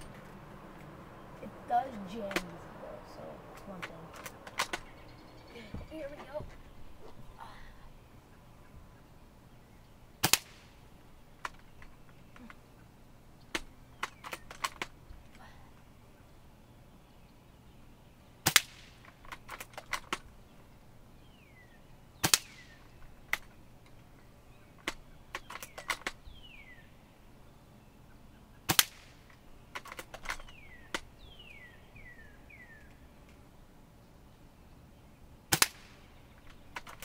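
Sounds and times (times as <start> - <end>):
airsoft rifle shots: 10.2 - 10.8, 18.4 - 20.2, 22.2 - 23.5, 28.7 - 31.0, 35.5 - 36.1.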